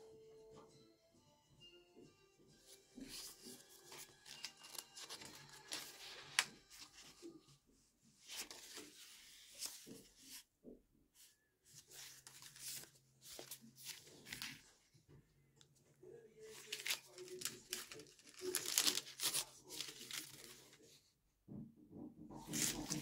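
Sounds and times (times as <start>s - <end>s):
paper pages rustling: 3.0s - 7.4s, 8.2s - 10.4s, 11.2s - 14.8s, 16.4s - 21.0s, 22.4s - 23.0s.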